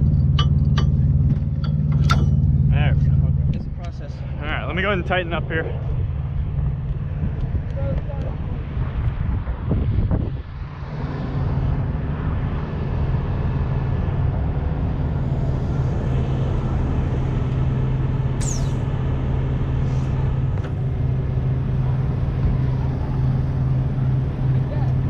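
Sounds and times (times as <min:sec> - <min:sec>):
diesel engine running: 0:00.0 - 0:25.0
high falling squeak: 0:18.4 - 0:18.9.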